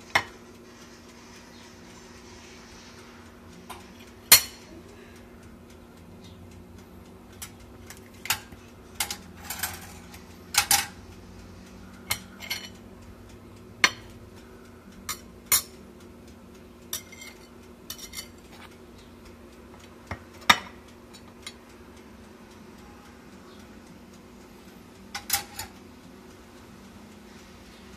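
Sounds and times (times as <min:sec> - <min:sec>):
cutlery clinking on bone and plate: 0:12.1 - 0:12.8, 0:17.0 - 0:18.7, 0:25.2 - 0:25.8.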